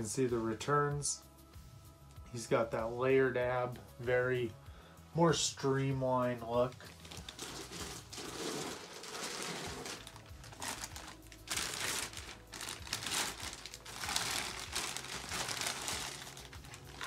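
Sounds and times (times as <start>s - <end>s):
packaging rustling and crinkling: 6.7s - 17.0s.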